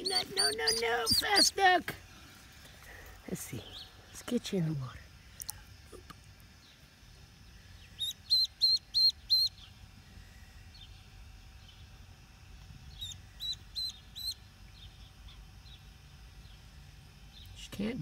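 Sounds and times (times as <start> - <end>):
duckling peeping: 0.0 - 1.7, 7.7 - 9.8, 12.8 - 16.6.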